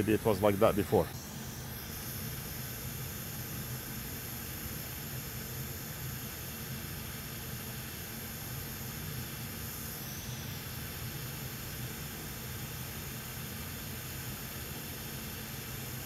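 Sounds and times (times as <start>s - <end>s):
steady hiss: 0.0s - 1.2s
workbench equipment humming: 0.0s - 16.0s.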